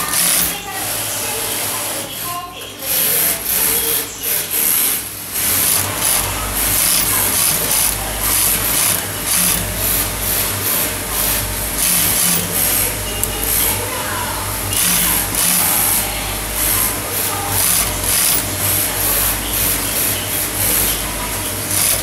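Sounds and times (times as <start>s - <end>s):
industrial sewing machine stitching: 0.0s - 22.0s
low motor hum: 5.2s - 22.0s.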